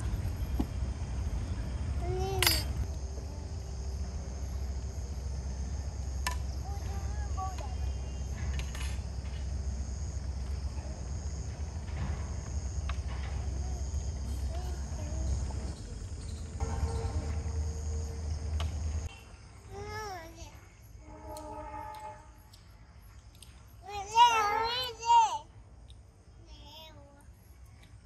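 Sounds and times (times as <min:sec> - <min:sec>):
insects chirring: 0:00.0 - 0:28.0
metal utensils clinking on plates: 0:02.4 - 0:02.8.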